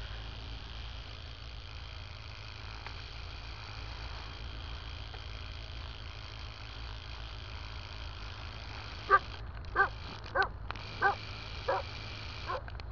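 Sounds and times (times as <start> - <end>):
steady hiss and low hum: 0.0 - 12.9
dog barking: 9.1 - 11.9.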